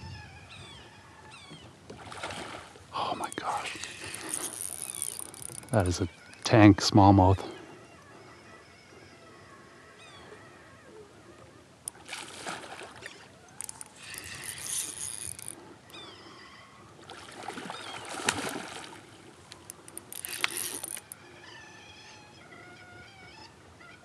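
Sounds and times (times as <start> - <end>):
birds chirping faintly: 2.9 - 11.9, 17.6 - 24.0
water splashing and rattling: 3.8 - 6.0, 11.9 - 15.6, 17.1 - 21.2.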